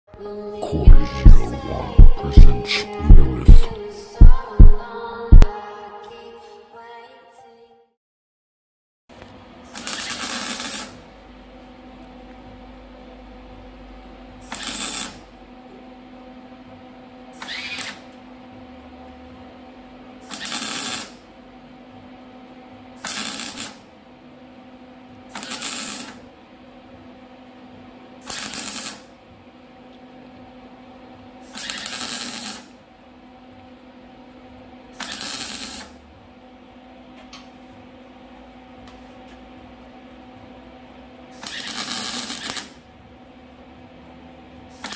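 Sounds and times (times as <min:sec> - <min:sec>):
welder hum: 0:00.6 - 0:05.5, 0:28.3 - 0:29.1, 0:31.5 - 0:32.7, 0:35.0 - 0:36.0, 0:41.4 - 0:42.8
welding arc crackling: 0:09.8 - 0:11.0, 0:25.4 - 0:26.1, 0:28.3 - 0:29.0, 0:31.6 - 0:32.6, 0:35.0 - 0:35.9, 0:41.5 - 0:42.7.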